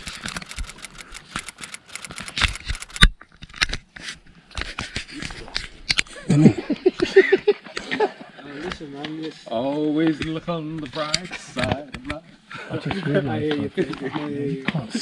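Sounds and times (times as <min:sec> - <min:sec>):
handling clicks and scrapes: 0:00.0 - 0:06.1.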